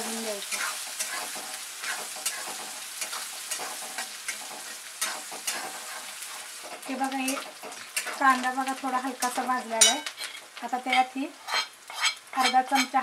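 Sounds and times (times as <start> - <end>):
onion sizzling in hot oil: 0.0 - 13.0
metal spatula scraping pan: 0.5 - 8.2, 9.2 - 13.0.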